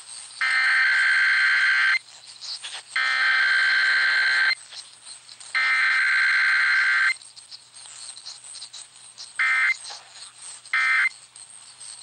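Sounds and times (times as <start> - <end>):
radio static hissing: 10.8 - 11.1.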